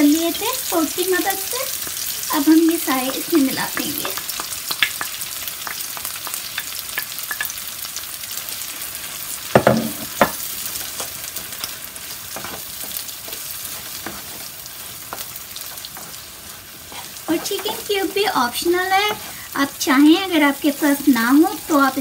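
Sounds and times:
rice sizzling in oil: 0.0s - 22.0s
wooden spatula scraping a pan: 12.4s - 19.6s.

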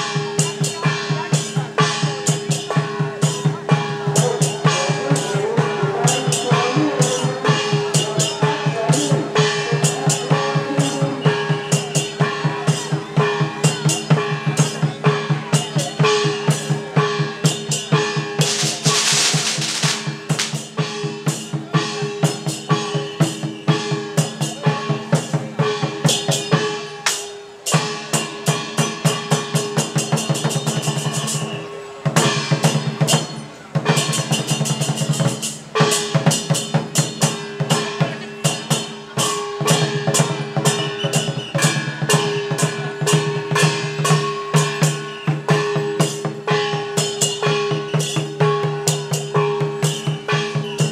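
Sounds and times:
drum beating fast: 0.0s - 26.8s
cymbals: 0.0s - 50.9s
burst of noise: 18.4s - 20.8s.

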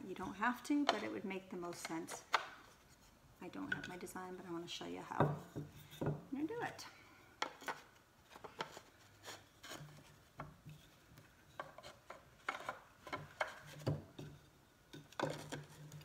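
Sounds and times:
wood scraping against wood: 7.4s - 16.0s.

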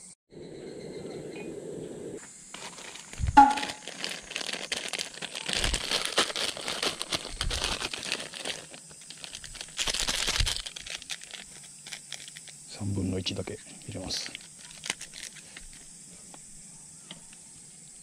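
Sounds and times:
plastic sachet crinkling and tearing: 2.5s - 12.6s, 13.9s - 15.9s.

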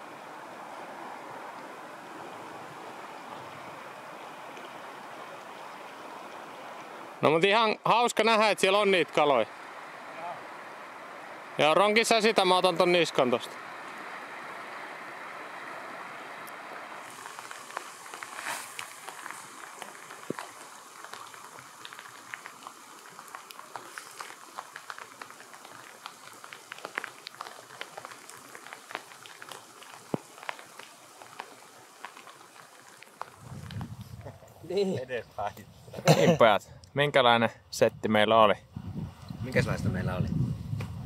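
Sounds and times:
river rapids rushing: 0.0s - 33.4s
rain hissing: 0.0s - 36.4s
raindrops ticking: 16.4s - 34.0s.

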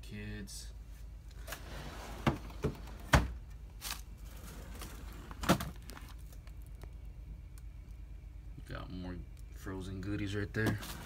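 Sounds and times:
plastic freezer drawers clunking: 1.5s - 3.4s, 4.4s - 6.1s, 10.6s - 11.0s.

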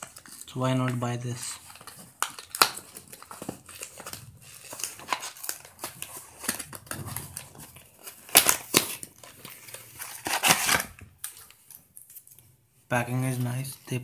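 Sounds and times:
cardboard box rustling and crinkling: 0.0s - 11.1s.

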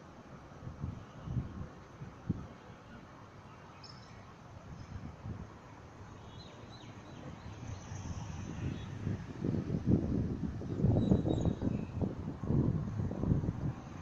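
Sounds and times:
distant traffic: 0.0s - 14.0s
wind rumble: 7.0s - 14.0s.

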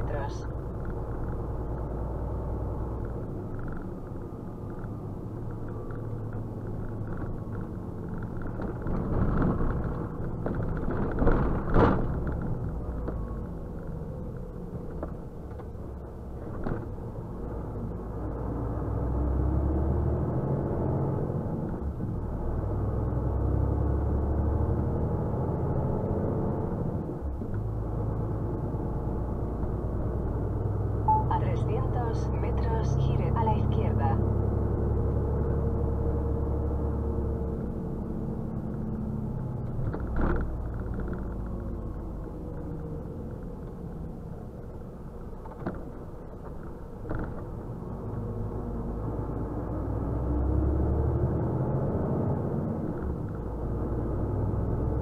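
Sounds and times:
truck engine rumbling: 0.0s - 55.0s.

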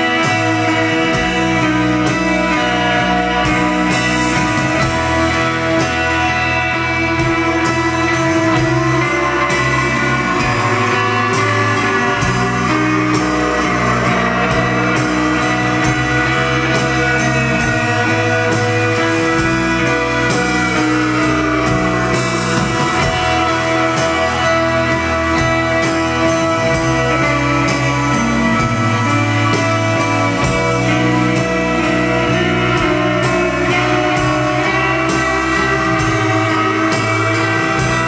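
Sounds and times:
live rock band playing: 0.0s - 38.0s.

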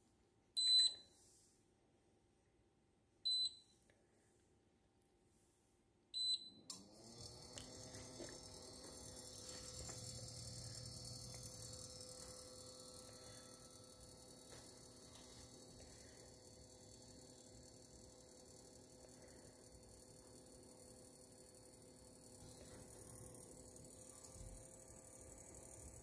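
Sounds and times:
touch control beeps: 0.6s - 1.0s, 3.3s - 3.6s
induction cooktop hum with hiss: 6.2s - 26.0s.

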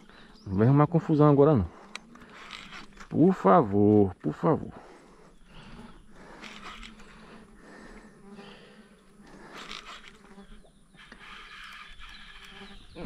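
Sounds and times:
insect buzzing faintly: 0.0s - 13.0s.

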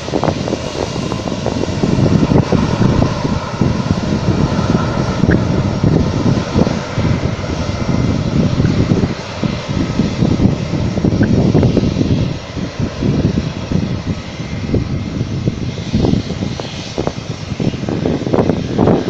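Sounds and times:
jet airliner engines rumbling: 0.0s - 19.0s.

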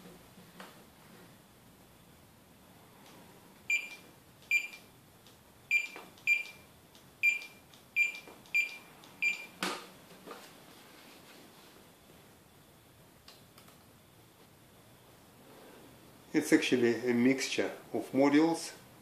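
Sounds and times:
barcode scanner beeping: 3.7s - 4.9s, 5.7s - 6.6s, 7.2s - 9.6s.

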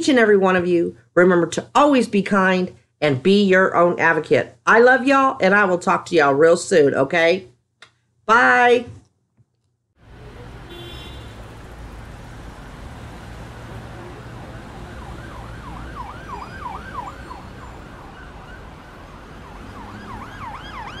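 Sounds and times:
emergency vehicle siren: 10.0s - 21.0s
street traffic rumble: 10.0s - 21.0s.

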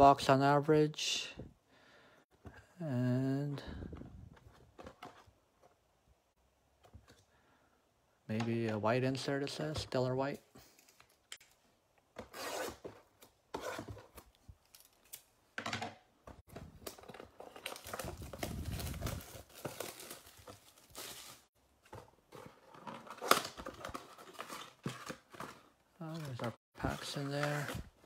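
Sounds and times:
plastic wrap tearing and crinkling: 17.5s - 21.5s.

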